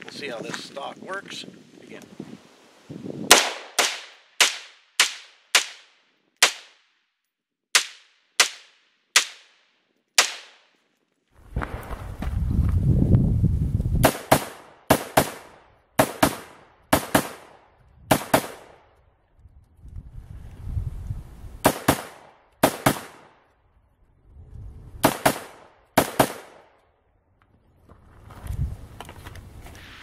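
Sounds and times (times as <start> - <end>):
rifle shots in double taps: 3.3 - 6.9.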